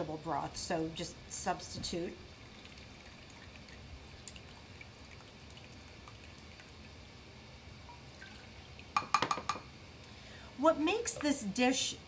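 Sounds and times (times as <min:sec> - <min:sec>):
liquid trickling and dripping: 0:02.3 - 0:07.0, 0:07.8 - 0:09.0.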